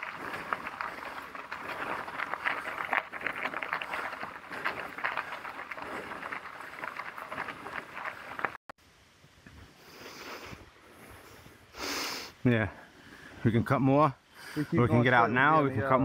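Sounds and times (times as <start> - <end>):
bike tyres crunching gravel and leaves: 0.0 - 8.6.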